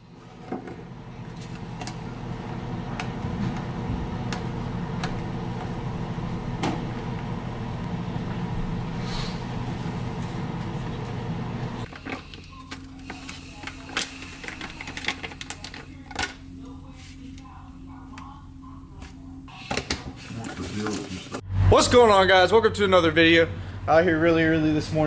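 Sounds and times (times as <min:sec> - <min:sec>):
kitchen appliance humming: 0:00.0 - 0:17.2.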